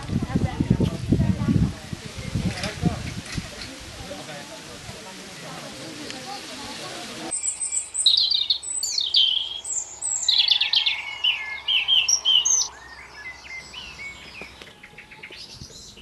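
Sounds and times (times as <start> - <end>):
songbird chirps and trills: 5.9 - 16.0.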